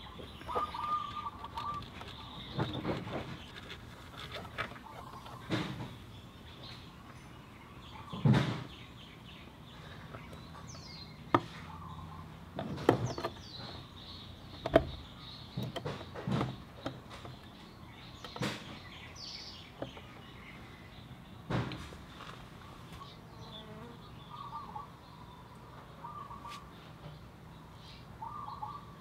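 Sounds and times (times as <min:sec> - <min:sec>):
faint bird chirps: 0:00.0 - 0:03.6, 0:22.6 - 0:29.0.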